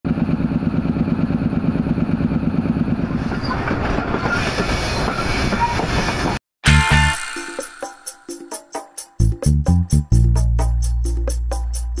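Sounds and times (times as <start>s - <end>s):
train wheels throbbing on rails: 0.1s - 6.4s
rushing wheels and wind: 1.6s - 6.4s.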